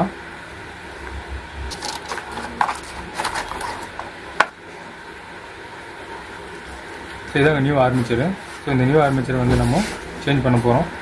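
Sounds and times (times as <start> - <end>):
cardboard box scraping and rustling: 1.7 - 4.1.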